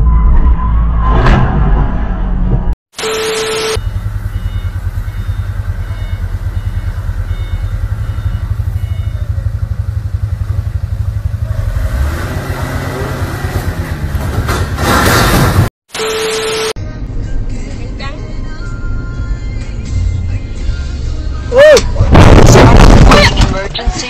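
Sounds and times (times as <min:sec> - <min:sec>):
steady beep: 0:03.0 - 0:10.1, 0:16.0 - 0:16.8
car engine running: 0:03.2 - 0:15.7.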